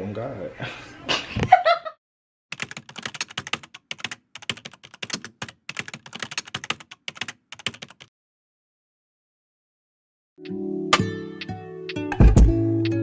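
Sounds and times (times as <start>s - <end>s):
keyboard typing clicks: 2.6s - 8.1s.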